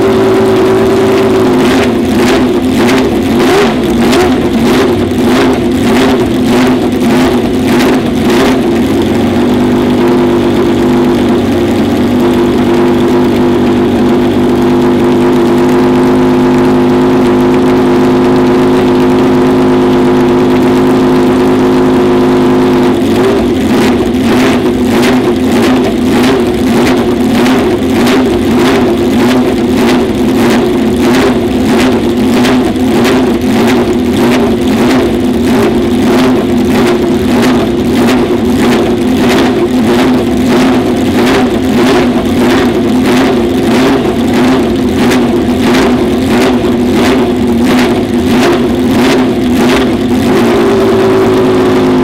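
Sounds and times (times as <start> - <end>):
racing engine running loudly: 0.0 - 52.0.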